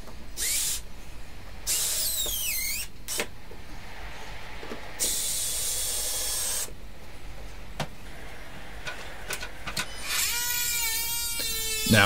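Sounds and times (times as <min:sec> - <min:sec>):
drill driving screw into wood: 0:00.4 - 0:00.8, 0:01.7 - 0:03.3, 0:09.9 - 0:11.9
power tool whine: 0:00.4 - 0:00.8, 0:01.6 - 0:03.2, 0:05.0 - 0:06.7, 0:08.1 - 0:11.9.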